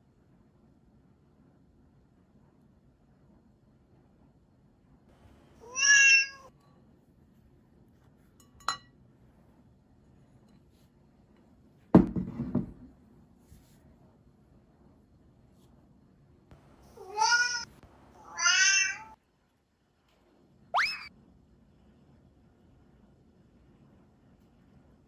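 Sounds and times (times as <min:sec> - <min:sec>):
cat meow: 0:05.6 - 0:06.5, 0:16.8 - 0:19.2
dull thump: 0:12.0 - 0:12.9.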